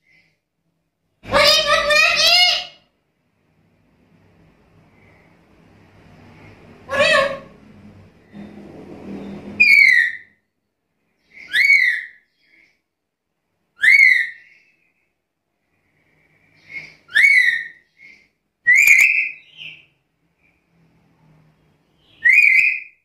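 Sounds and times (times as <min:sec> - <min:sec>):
parrot whistled calls: 0:09.6 - 0:10.4, 0:11.4 - 0:12.2, 0:13.8 - 0:14.6, 0:16.6 - 0:19.9, 0:22.0 - 0:23.0.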